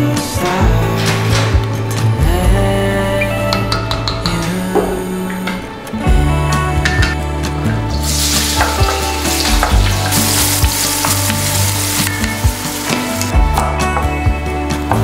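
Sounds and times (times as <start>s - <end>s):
soft background music: 0.0s - 15.0s
onion sizzling in hot fat: 7.9s - 13.3s.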